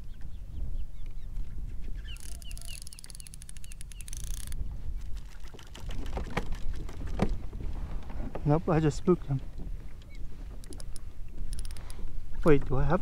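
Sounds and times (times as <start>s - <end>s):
bird chirping: 0.0s - 4.4s
low wind rumble: 0.0s - 13.0s
fishing reel spool whirring: 2.0s - 6.8s, 10.0s - 12.0s
reel clicks: 2.0s - 7.4s, 9.5s - 13.0s.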